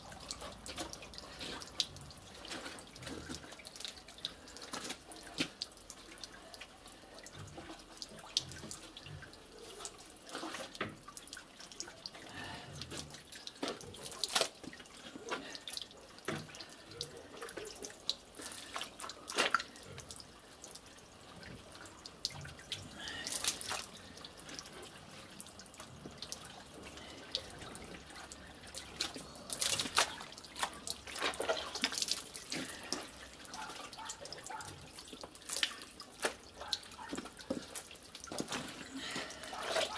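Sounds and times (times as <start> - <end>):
dripping water: 0.0 - 39.9
wet pulp splats: 13.0 - 14.8, 28.8 - 33.1.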